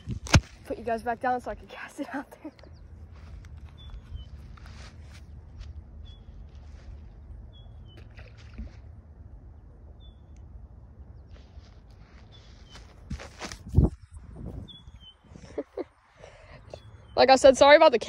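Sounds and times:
low wind rumble on microphone: 0.0 - 1.9, 2.5 - 15.9
bird chirping: 1.0 - 4.6, 6.0 - 6.4, 7.4 - 8.1, 9.9 - 10.5, 14.6 - 17.7.

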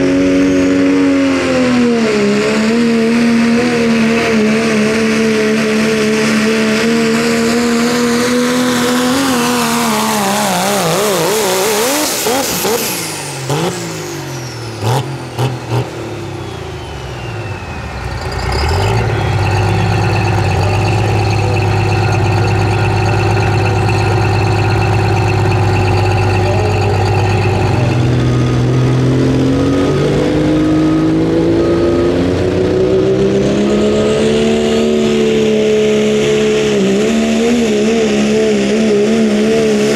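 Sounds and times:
diesel engine revving up: 0.0 - 39.9
diesel engine under load: 0.0 - 39.9
whistle sliding down: 16.1 - 28.9.

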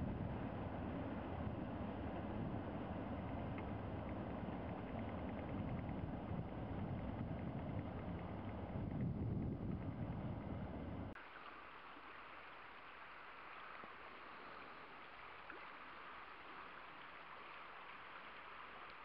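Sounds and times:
water rushing over spillway: 11.1 - 19.0.

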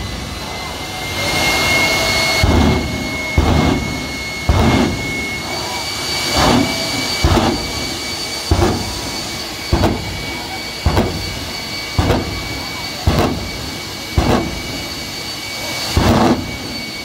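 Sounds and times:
jet engine high whine: 0.0 - 17.0
deep thumps of fireballs: 2.4 - 5.4, 6.3 - 15.0, 16.0 - 16.8.

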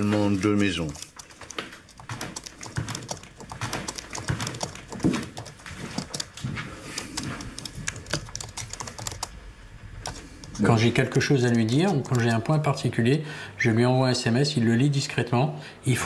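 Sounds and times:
keyboard typing: 0.0 - 12.6.

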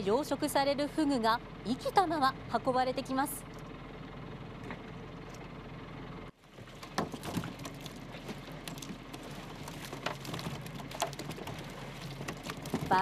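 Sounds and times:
low engine hum: 0.0 - 13.0
water splashing and dripping: 6.5 - 13.0.

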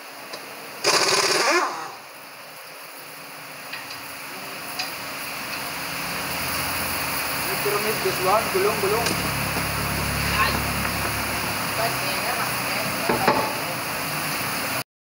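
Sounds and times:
impact wrench running: 0.8 - 2.0, 6.0 - 11.8.

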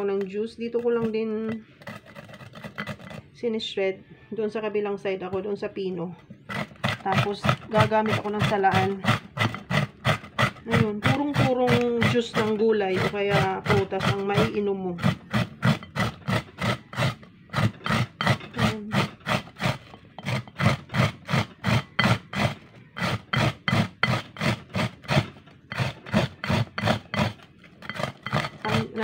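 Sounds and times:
gourd rasping on grater: 0.0 - 3.2, 6.5 - 29.0.

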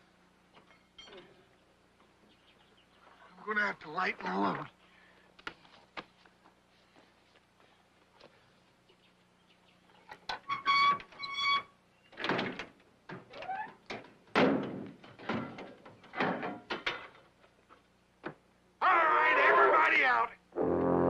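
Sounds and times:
door squeak: 10.4 - 12.3
metal door clunks and scrapes: 12.2 - 17.2.

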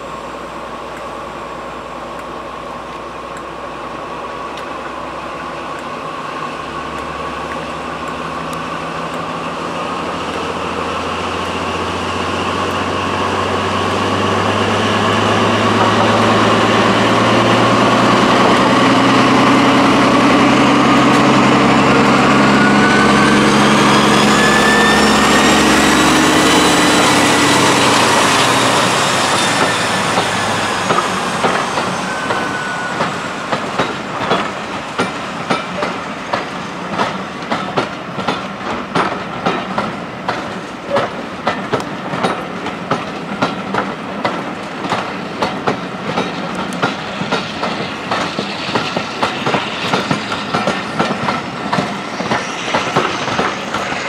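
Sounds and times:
rising whine: 0.0 - 34.9, 47.1 - 54.0
diesel locomotive engine: 0.0 - 54.0
train wheel clicks: 33.0 - 54.0.

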